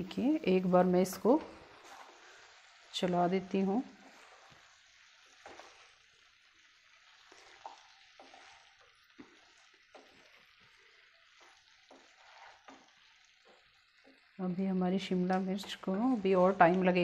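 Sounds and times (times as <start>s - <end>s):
food sizzling in pan: 0.0s - 17.0s
spatula scraping and knocking: 5.3s - 6.0s, 7.2s - 10.4s, 11.3s - 14.2s.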